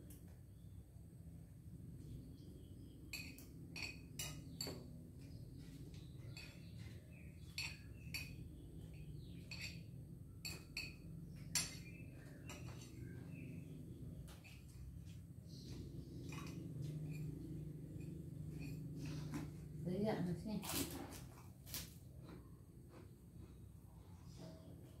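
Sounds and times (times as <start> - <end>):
spoon clinking against plate: 3.1 - 5.0, 7.4 - 13.4.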